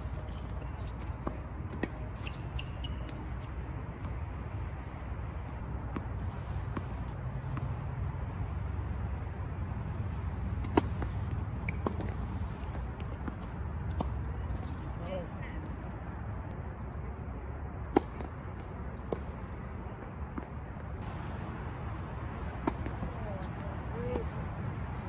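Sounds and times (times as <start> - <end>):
tennis ball bouncing on court: 0.0 - 4.3, 5.8 - 7.8, 10.6 - 15.0, 17.8 - 20.9, 22.5 - 24.3
low outdoor rumble: 0.0 - 25.0
tennis racquet hitting ball: 10.6 - 14.8, 17.8 - 18.4, 22.5 - 23.1.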